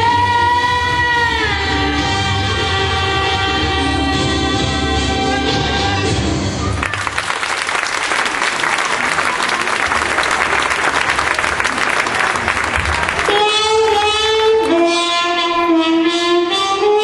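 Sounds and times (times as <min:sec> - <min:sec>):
music: 0:00.0 - 0:06.9, 0:13.3 - 0:17.0
audience applauding: 0:06.6 - 0:14.8.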